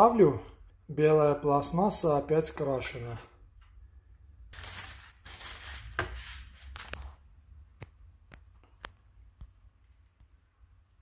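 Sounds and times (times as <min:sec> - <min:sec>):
bubble wrap rustling: 0:04.5 - 0:07.2.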